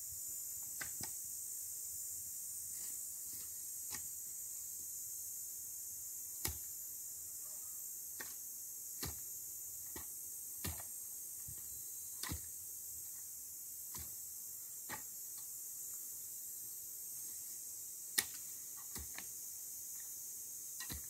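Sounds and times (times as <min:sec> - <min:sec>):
post-hole digger thudding into soil: 0:06.4 - 0:06.7, 0:09.0 - 0:12.6, 0:13.9 - 0:14.2, 0:18.1 - 0:19.3, 0:20.8 - 0:21.0.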